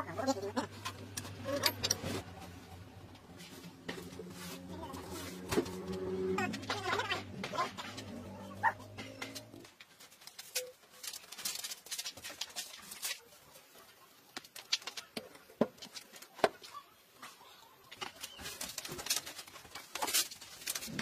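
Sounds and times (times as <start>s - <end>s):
low hum: 0.0s - 9.7s.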